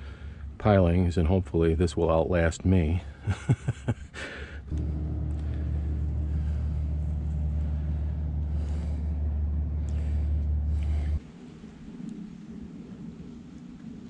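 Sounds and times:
motor humming: 0:04.7 - 0:11.2.

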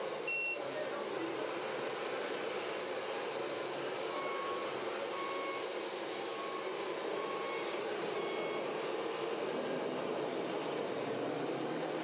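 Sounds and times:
short electronic beeps: 0:00.2 - 0:01.3.

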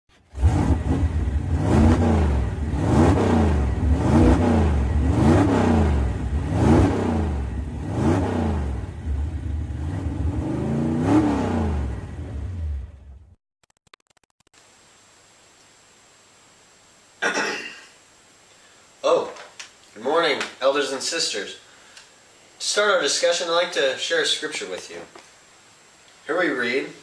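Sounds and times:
vehicle engine revving: 0:00.2 - 0:13.4.

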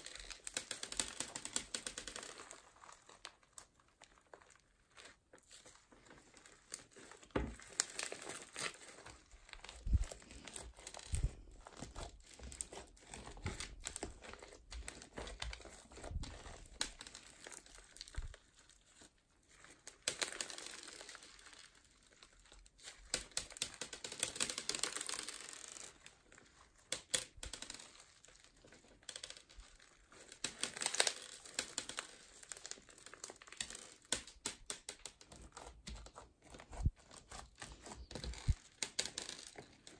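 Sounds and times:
crunchy slime crackling: 0:00.0 - 0:39.9.

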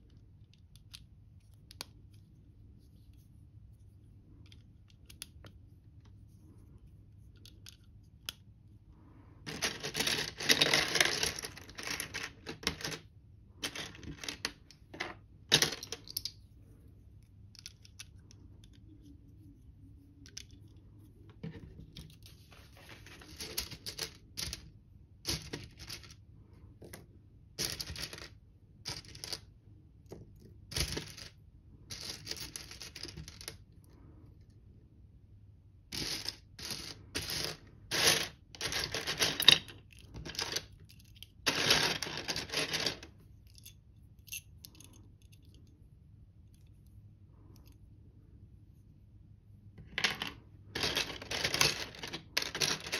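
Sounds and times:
loose plastic pieces rattling: 0:09.5 - 0:16.3, 0:36.0 - 0:43.7, 0:49.8 - 0:52.9.

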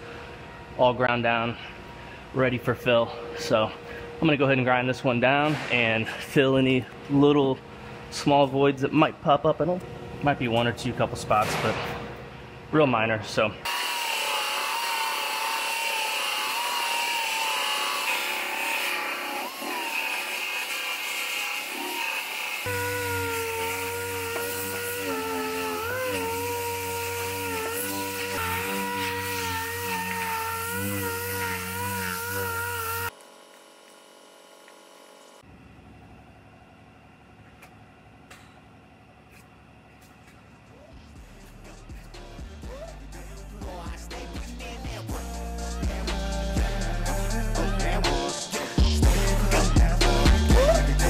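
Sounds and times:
belt sander grinding metal: 0:13.7 - 0:35.4.

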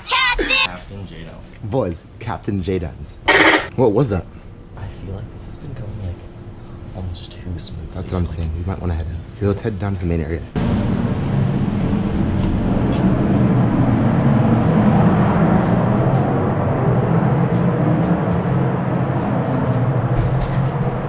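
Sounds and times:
ship machinery drone: 0:03.2 - 0:05.6, 0:10.5 - 0:21.0
low hum: 0:03.3 - 0:03.7, 0:10.6 - 0:21.0.

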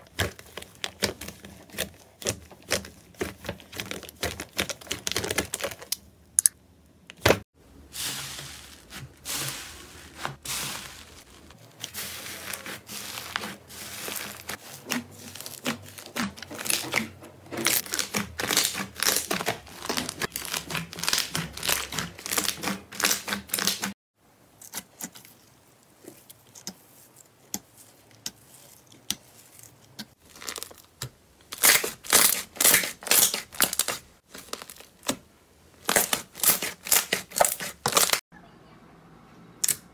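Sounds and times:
slime squishing: 0:00.0 - 0:06.0, 0:07.9 - 0:23.9, 0:24.6 - 0:38.2
slime crackling and popping: 0:17.8 - 0:23.8, 0:30.2 - 0:35.2, 0:35.8 - 0:38.2.

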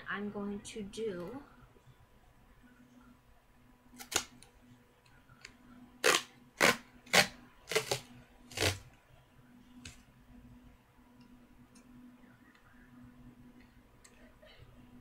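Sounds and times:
duct tape ripping off roll: 0:04.0 - 0:04.4, 0:06.0 - 0:08.9.

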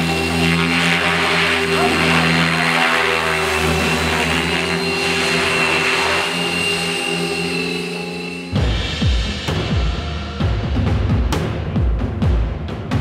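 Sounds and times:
model helicopters hovering: 0:00.0 - 0:08.7.

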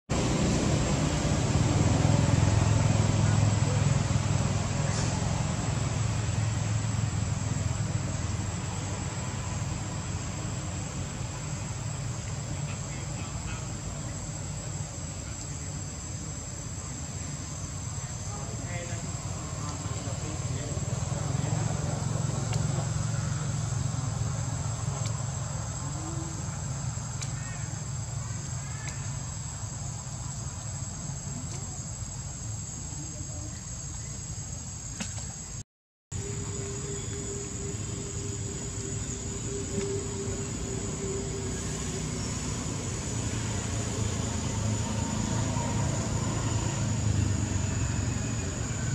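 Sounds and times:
vehicle engine rumble: 0:00.0 - 0:48.9
insects droning: 0:00.1 - 0:48.9
low rumble: 0:36.1 - 0:48.9.

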